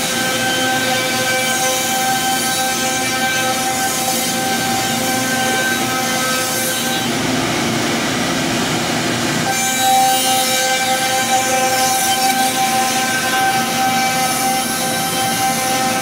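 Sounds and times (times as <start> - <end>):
router bits cutting wood: 9.5 - 16.0.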